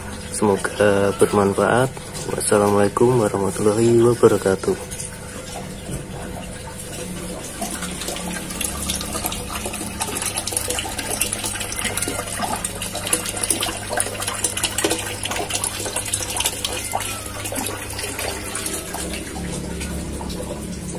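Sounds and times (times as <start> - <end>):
water splashing into tank: 0.0 - 20.9.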